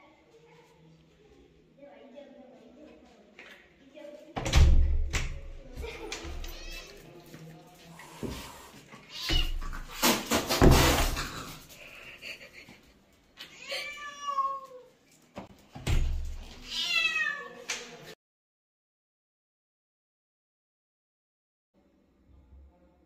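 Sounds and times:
cat hissing: 8.2 - 12.1
cat yowling: 13.6 - 14.8, 16.7 - 17.6.

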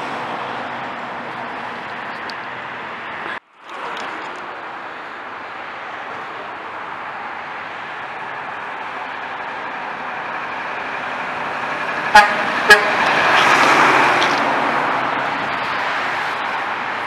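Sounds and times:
diesel truck engine passing: 0.0 - 17.0
truck horn toots: 12.0 - 13.2.

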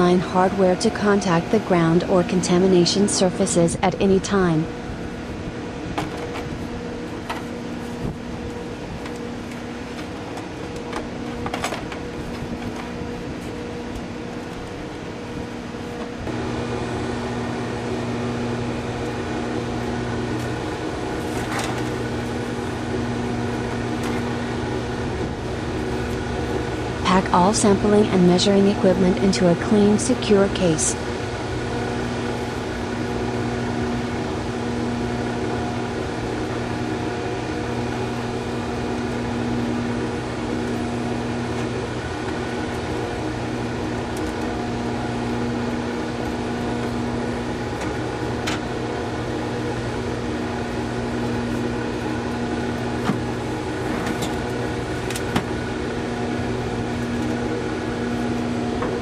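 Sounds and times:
machinery hum: 0.0 - 59.0.

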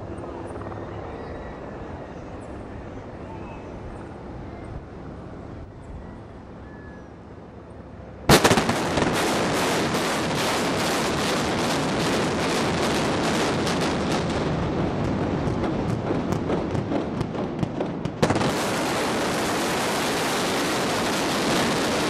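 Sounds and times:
crackling string of bangs: 8.3 - 22.0.

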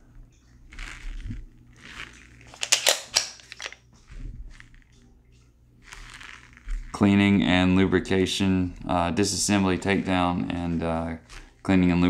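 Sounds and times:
hands rubbing on pistol: 9.5 - 12.0.

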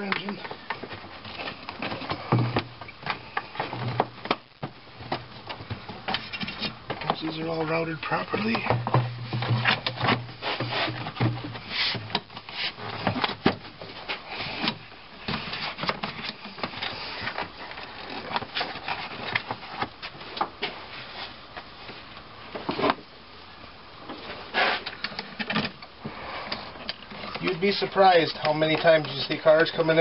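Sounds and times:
plastic tube rubbing: 9.3 - 13.2.

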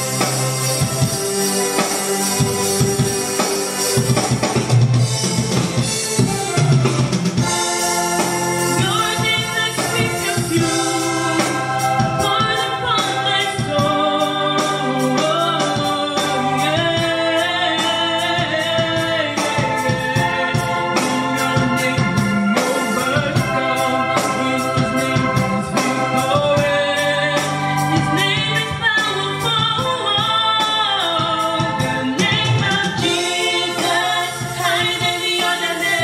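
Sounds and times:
music with drums and keyboard: 0.0 - 36.0
woman singing: 8.8 - 36.0.

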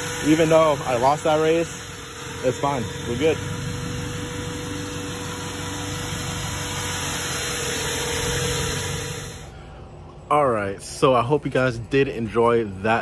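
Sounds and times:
car engine idling: 0.0 - 10.3.

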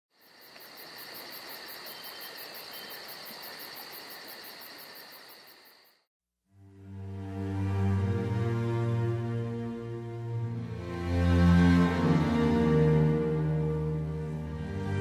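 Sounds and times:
insects trilling: 0.1 - 6.0
outdoor ambience hiss: 0.1 - 6.0
insects pulsing chirp: 0.1 - 6.1.

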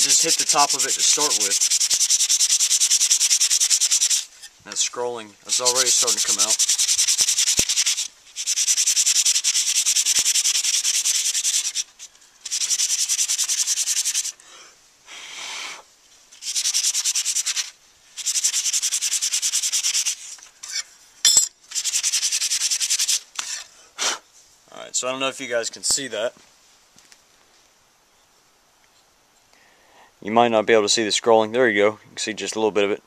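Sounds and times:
sandpaper rubbing metal: 0.0 - 14.4, 16.3 - 20.9, 21.7 - 23.7.

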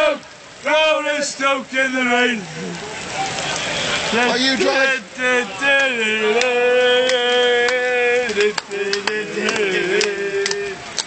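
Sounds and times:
man singing long notes: 4.1 - 11.0.

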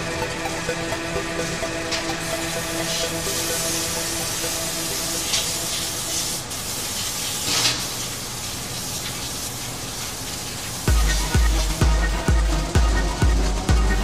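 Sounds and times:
music with heavy bass beat: 0.0 - 6.1, 10.9 - 14.0
hissing spray: 2.1 - 12.2.

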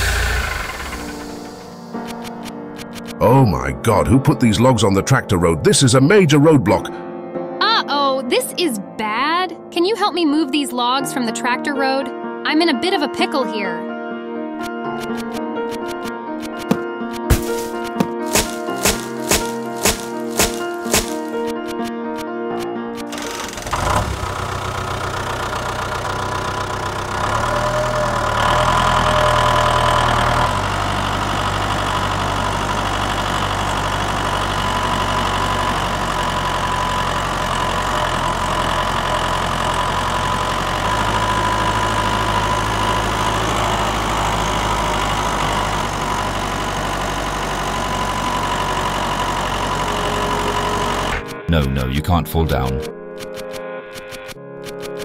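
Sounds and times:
tractor engine running: 0.0 - 3.7, 15.1 - 21.9, 23.0 - 55.0.

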